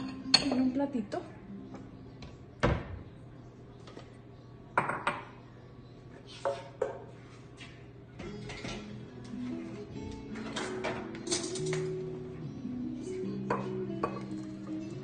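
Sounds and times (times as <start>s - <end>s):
kitchenware knocking on countertop: 4.8s - 5.3s.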